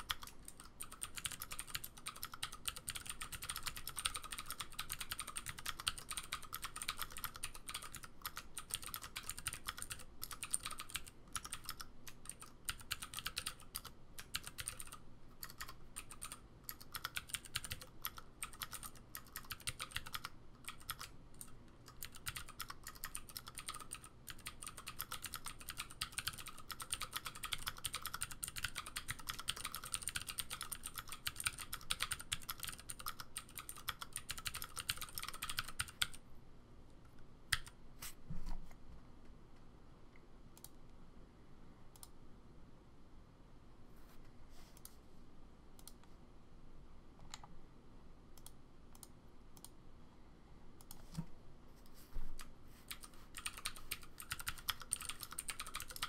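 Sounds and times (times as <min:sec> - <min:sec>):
clicky mechanical keyboard typing: 0:00.0 - 0:36.2, 0:37.5 - 0:37.8, 0:52.9 - 0:56.0.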